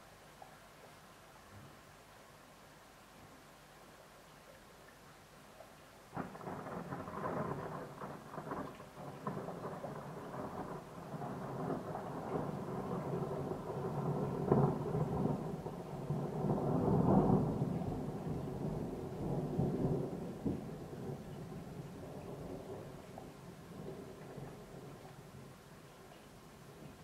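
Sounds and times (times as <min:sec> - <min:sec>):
steady rain: 0:00.0 - 0:27.0
thunder rumbling: 0:06.1 - 0:25.8.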